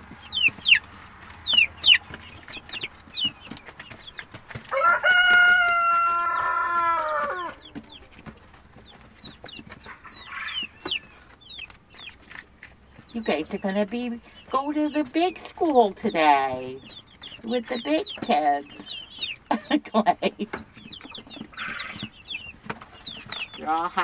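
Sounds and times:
chicks peeping: 0:00.0 - 0:24.0
rooster crowing: 0:04.7 - 0:07.6.

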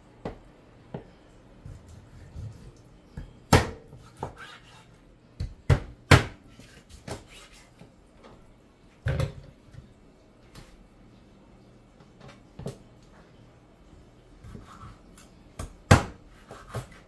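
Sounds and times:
knife chopping on cutting board: 0:14.4 - 0:17.0.

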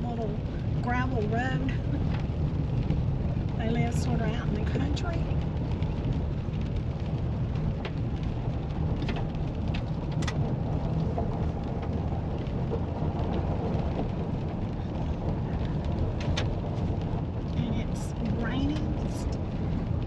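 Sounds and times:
rumble of tyres and engine: 0:00.0 - 0:20.0
sharp gravel ticks: 0:04.4 - 0:20.0.

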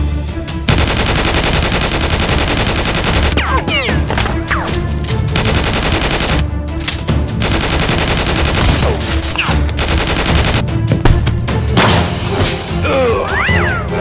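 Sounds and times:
background music: 0:00.0 - 0:14.0
automatic gunfire bursts: 0:00.7 - 0:03.4, 0:05.3 - 0:06.4, 0:07.4 - 0:08.8, 0:09.8 - 0:10.6.

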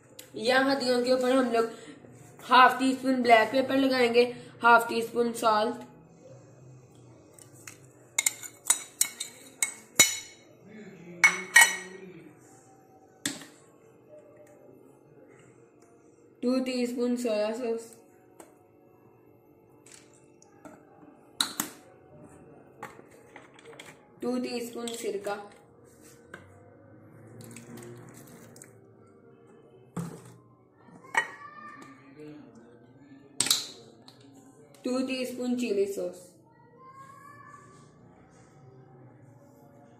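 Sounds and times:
teaspoon clinking against ceramic bowl: 0:08.2 - 0:10.4.

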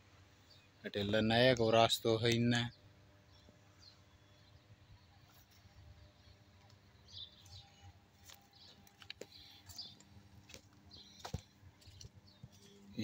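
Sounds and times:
low steady hum: 0:00.0 - 0:13.0
faint bird chirps: 0:02.7 - 0:13.0.

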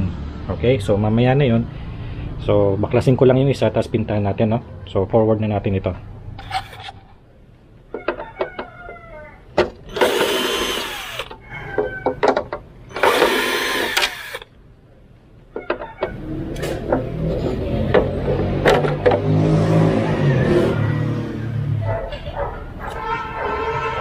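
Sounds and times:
cordless drill whirring: 0:09.9 - 0:11.3, 0:12.9 - 0:14.5.

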